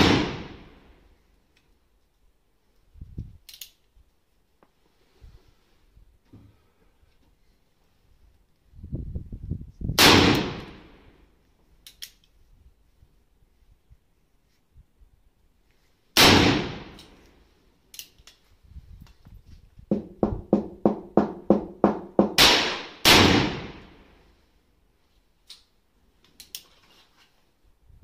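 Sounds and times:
revolver gunshots with ringing decay: 0.0 - 0.8, 10.0 - 11.0, 16.2 - 17.0, 22.4 - 24.0.

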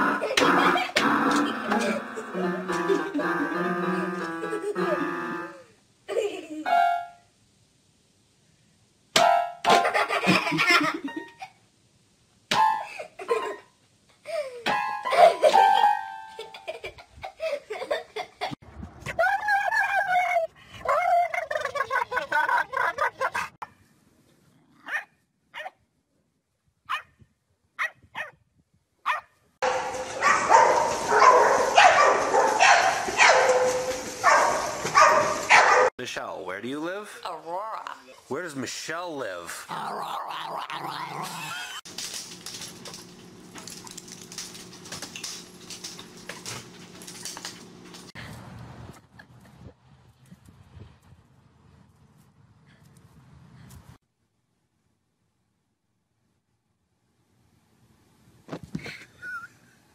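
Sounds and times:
dog yelping: 24.8 - 25.8, 26.9 - 27.1, 27.8 - 28.4, 29.0 - 29.3, 30.2 - 35.9
low electrical hum: 40.6 - 48.2.

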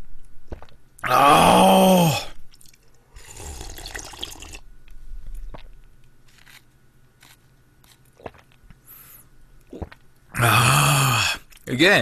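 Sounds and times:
faint mouth sounds: 9.6 - 10.1
swallow: 9.7 - 10.0.

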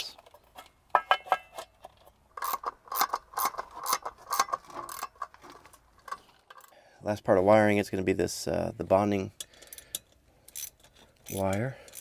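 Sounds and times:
hand driver ratchet clicks: 1.5 - 5.4, 9.4 - 12.0.

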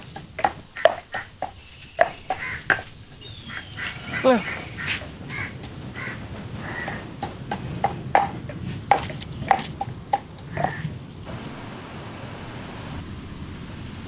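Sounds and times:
pestle pounding in stone mortar: 0.0 - 3.2, 4.2 - 11.0
steady low hiss: 0.0 - 14.0.

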